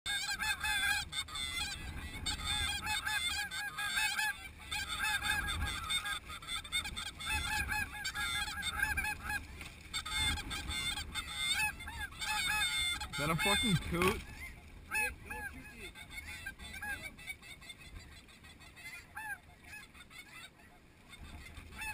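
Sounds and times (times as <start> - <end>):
flock of geese honking: 0.1 - 21.9.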